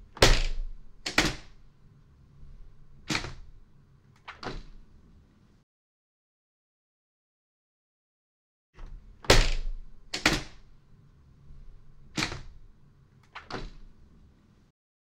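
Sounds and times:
window latch click: 0:09.2 - 0:10.6.

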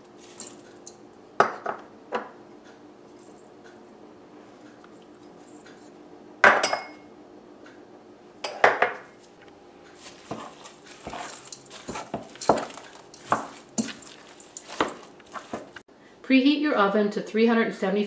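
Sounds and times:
spoon scraping metal bowl: 0:00.2 - 0:01.0, 0:10.0 - 0:15.8.

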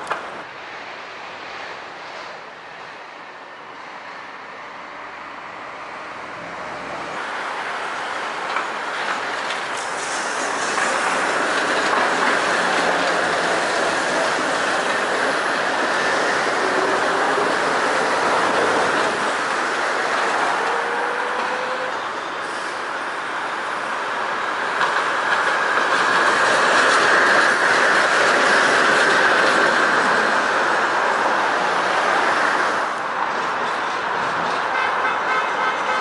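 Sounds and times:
tram track clacks: 0:00.0 - 0:04.8, 0:05.4 - 0:36.0
tram wheels rolling on rail: 0:05.4 - 0:36.0.

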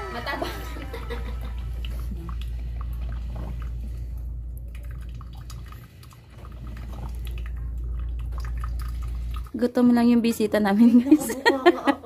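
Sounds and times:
coffee maker gurgling: 0:00.0 - 0:11.4
steady low hum: 0:00.0 - 0:12.0
coffee dripping into carafe: 0:01.4 - 0:09.6.

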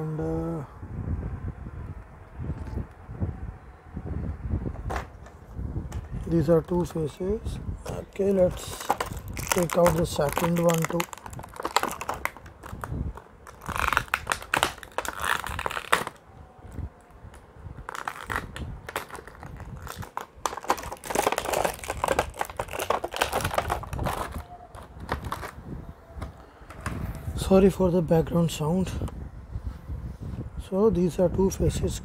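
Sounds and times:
plastic packaging crinkling: 0:08.4 - 0:16.2, 0:17.8 - 0:25.6.

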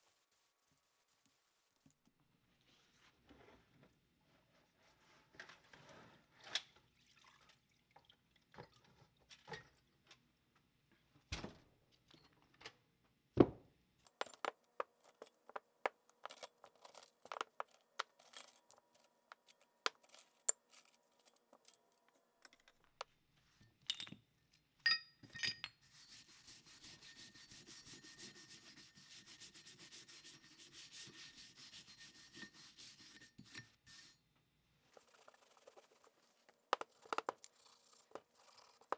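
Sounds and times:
hand brush scrubbing metal: 0:25.8 - 0:34.2, 0:35.0 - 0:38.9.

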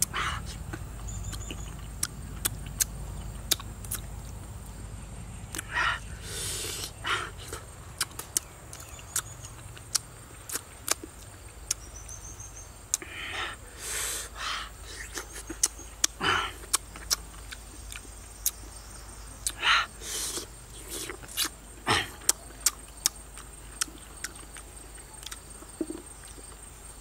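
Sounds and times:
breathy slurps: 0:00.0 - 0:01.6, 0:05.6 - 0:07.6, 0:19.5 - 0:22.3
wet chewing smacks: 0:00.0 - 0:04.3, 0:06.6 - 0:11.9, 0:15.0 - 0:18.8.

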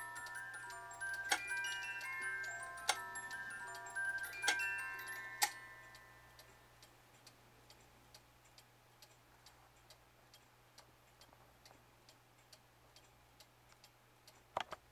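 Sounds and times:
cuckoo clock tune: 0:00.0 - 0:06.8
clock ticking faintly: 0:00.0 - 0:14.9.

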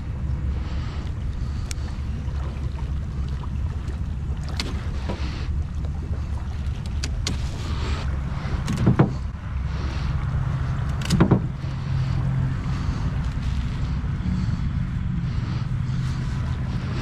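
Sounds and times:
knocks on metal boat: 0:08.8 - 0:09.2, 0:11.2 - 0:11.5.

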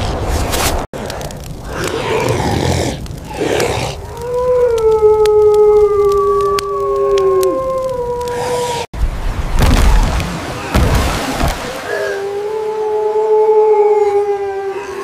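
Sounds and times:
wolf howling: 0:01.7 - 0:08.9, 0:11.8 - 0:15.0.

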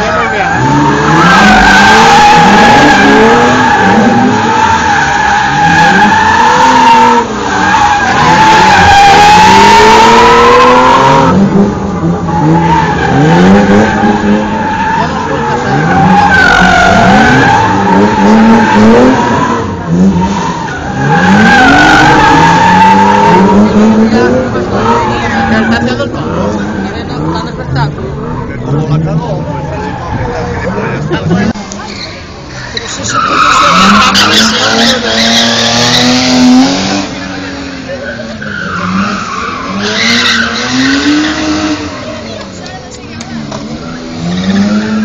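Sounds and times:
car engine revving: 0:00.0 - 0:45.0
tyres squealing: 0:31.3 - 0:45.0.

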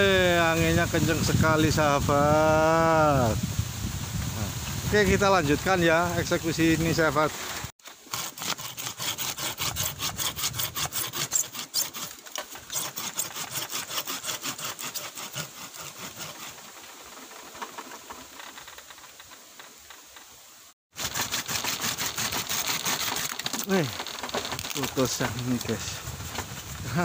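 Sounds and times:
hand saw cutting bamboo root: 0:06.0 - 0:17.9, 0:21.0 - 0:26.6.

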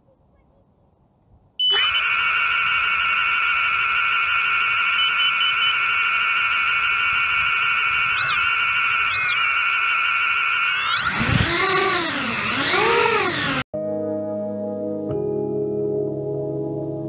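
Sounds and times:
motor pitch blips: 0:01.6 - 0:13.6
drone motors whining: 0:01.6 - 0:13.7.

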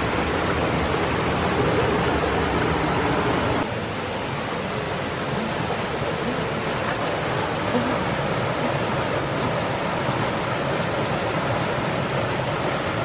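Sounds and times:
stream water rushing over rocks: 0:00.0 - 0:13.0.

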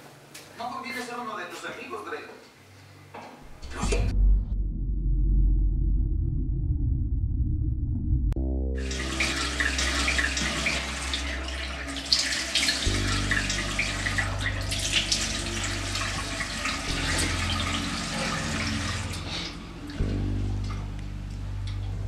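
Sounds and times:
low droning music tone: 0:03.4 - 0:22.0
tap running into basin: 0:08.8 - 0:20.1
water splashing: 0:08.8 - 0:20.1.

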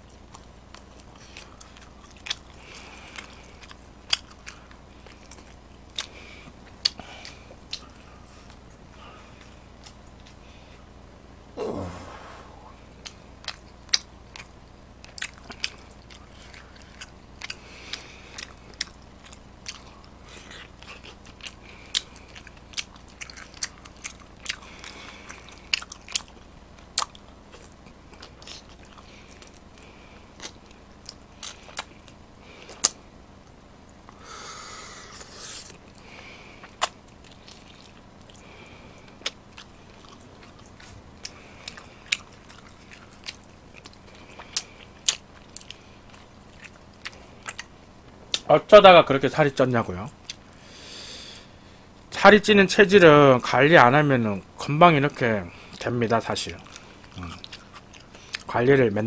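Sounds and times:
food crunching: 0:00.0 - 0:10.8, 0:12.2 - 0:34.2, 0:35.1 - 0:48.5, 0:50.0 - 0:51.5, 0:55.0 - 0:59.0
person chewing food: 0:00.0 - 0:11.0, 0:11.6 - 0:48.5, 0:50.1 - 0:51.9, 0:55.2 - 0:58.6
breathy rush: 0:11.6 - 0:12.8.

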